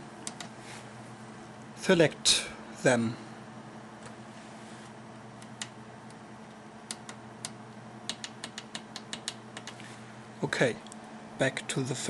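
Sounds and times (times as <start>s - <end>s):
computer low hum: 0.0s - 12.0s
push buttons clicking: 6.9s - 9.8s.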